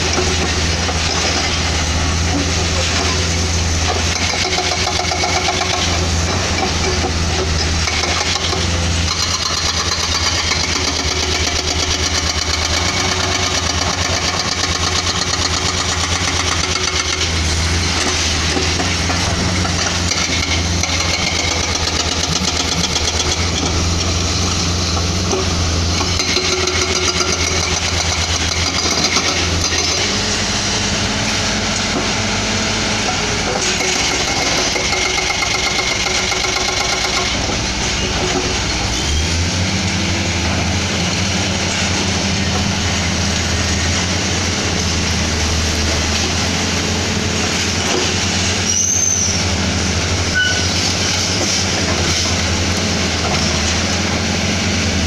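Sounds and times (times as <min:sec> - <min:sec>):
hydraulic breakers hammering rock: 0:00.0 - 0:30.3, 0:33.0 - 0:39.0
diesel engines running: 0:00.0 - 0:55.0.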